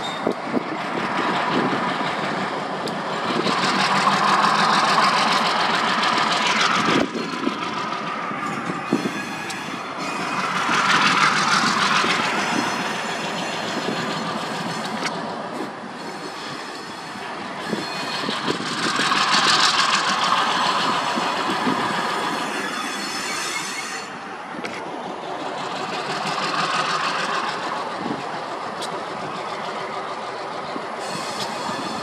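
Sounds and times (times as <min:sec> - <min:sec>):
train wheels rolling on rails: 0:00.0 - 0:32.0.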